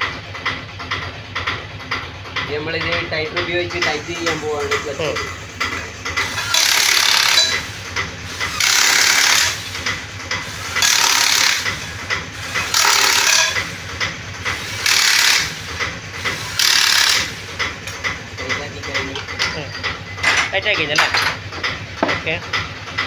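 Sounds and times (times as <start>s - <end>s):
hand tool scraping metal: 6.2s - 7.6s, 10.5s - 13.7s.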